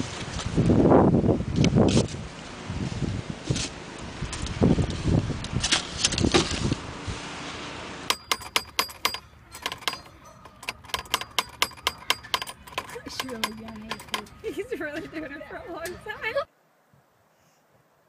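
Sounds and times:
metallic clicks of feed dispenser knob: 8.1 - 14.4.

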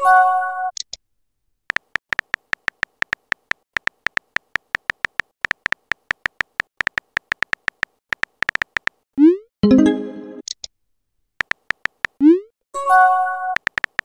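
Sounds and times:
phone keyboard key clicks: 1.7 - 9.0, 11.4 - 12.2, 13.6 - 14.0.

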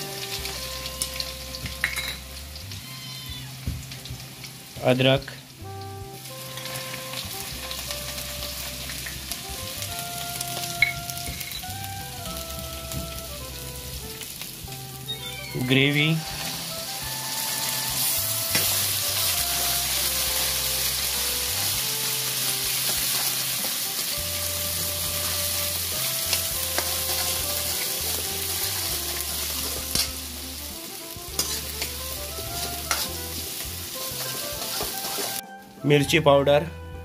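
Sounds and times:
paste sizzling in hot oil: 0.0 - 35.4
ladle knocking pan: 31.4 - 31.9.

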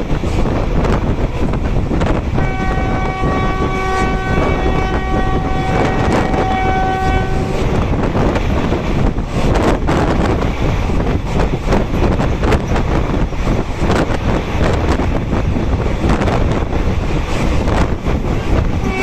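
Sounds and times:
rush of wind and wheel noise: 0.0 - 19.0
multi-tone train horn blast: 2.3 - 8.0, 18.6 - 19.0.

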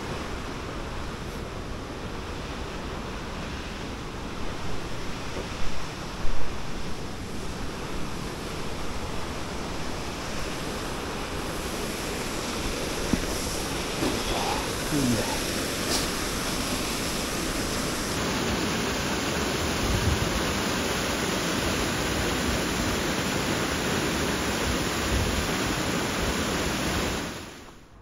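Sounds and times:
wind rumbling on microphone: 0.0 - 27.6
waterfall rushing: 2.6 - 27.6.

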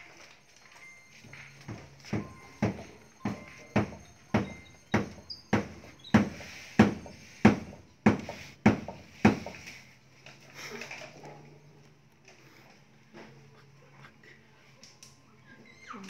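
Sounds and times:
steady knocking: 1.2 - 9.7.

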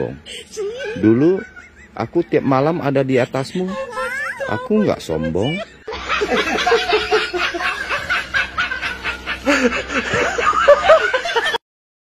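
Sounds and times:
rapid laughter: 1.0 - 2.6, 5.4 - 11.6.

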